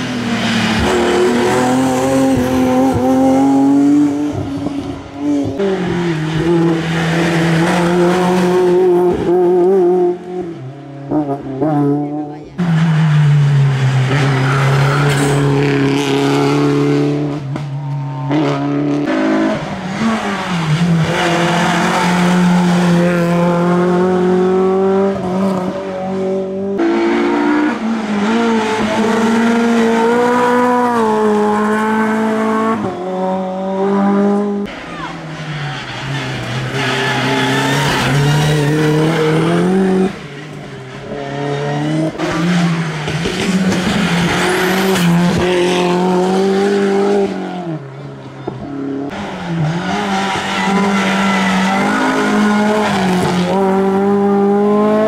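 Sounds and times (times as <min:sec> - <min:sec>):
rally car engines revving: 0:00.0 - 0:55.0.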